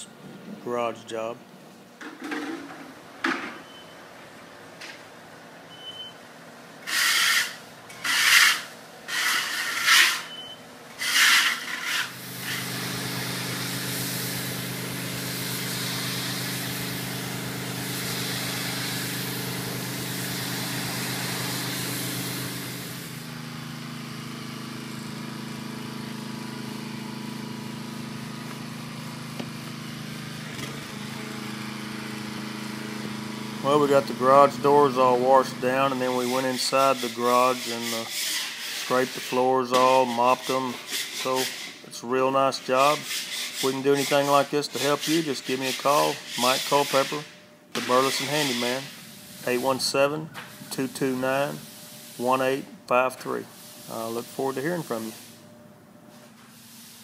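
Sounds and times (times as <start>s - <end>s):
short hissing bursts: 6.9s - 10.3s, 11.0s - 23.2s, 36.0s - 39.3s, 42.8s - 52.5s, 53.3s - 55.4s, 56.5s - 57.0s
pressure washer engine running: 9.1s - 55.3s
water spray hiss: 12.2s - 23.2s, 47.8s - 49.9s.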